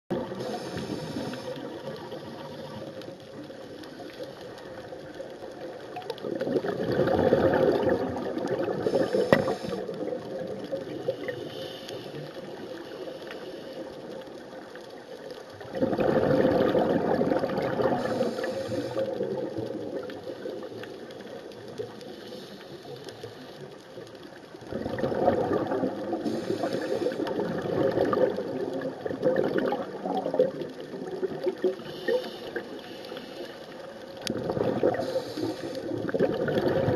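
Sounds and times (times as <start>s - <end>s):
underwater hiss: 0.1s - 30.5s, 31.2s - 36.9s
inhaled air hisses: 0.3s - 1.8s, 8.8s - 9.9s, 11.1s - 12.3s, 17.9s - 19.2s, 26.2s - 27.3s, 31.8s - 33.8s, 34.9s - 36.0s
bubbly rush of exhaled air: 6.2s - 11.4s, 15.6s - 20.7s, 24.7s - 32.2s, 34.3s - 36.9s.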